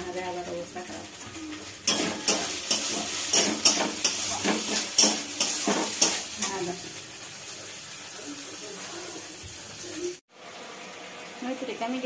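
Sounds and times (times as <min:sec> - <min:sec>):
food sizzling: 0:00.0 - 0:12.0
spatula scraping steel pan: 0:01.8 - 0:06.6.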